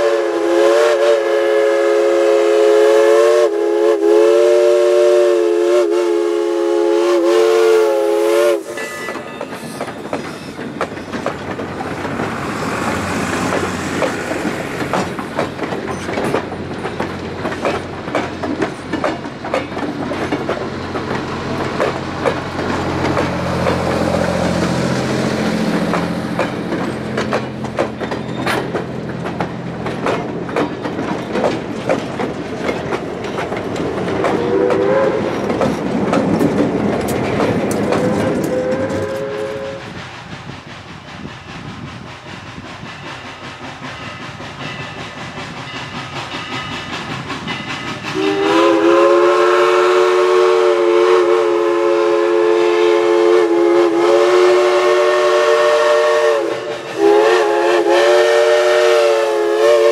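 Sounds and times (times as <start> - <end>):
steam locomotive whistle: 0.0 - 10.6, 34.2 - 35.4, 37.8 - 40.0, 48.0 - 59.9
train rumbling past: 0.0 - 59.9
wheels clicking over rail joints: 8.9 - 24.8, 25.4 - 48.6.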